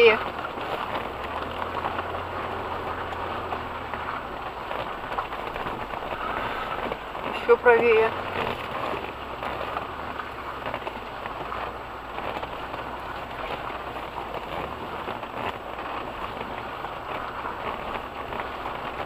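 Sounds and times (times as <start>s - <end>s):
engine hum: 0.0s - 19.0s
tyres splashing through mud: 0.0s - 19.0s.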